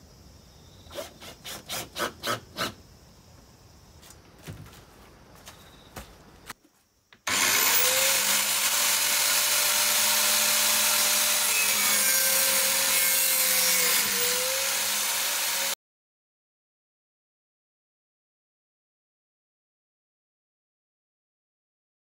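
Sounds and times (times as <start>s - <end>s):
angle grinder cutting pipe: 7.3s - 15.8s.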